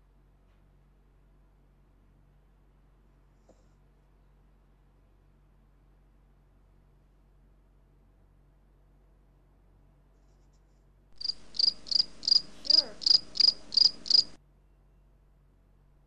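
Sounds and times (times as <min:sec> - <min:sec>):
cricket chirping: 0:11.2 - 0:14.4.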